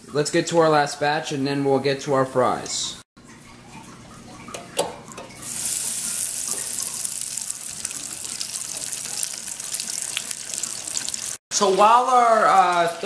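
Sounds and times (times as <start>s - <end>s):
oil sizzling and bubbling: 3.2s - 13.0s.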